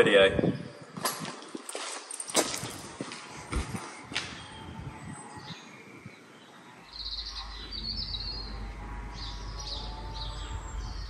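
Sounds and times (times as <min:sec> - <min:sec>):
small birds chirping: 0:00.0 - 0:11.0
steady low rumble: 0:06.8 - 0:11.0.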